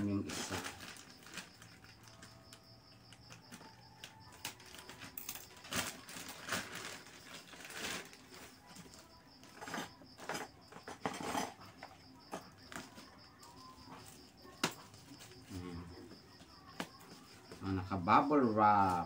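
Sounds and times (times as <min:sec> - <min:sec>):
plastic bag rustling: 0:00.0 - 0:10.3.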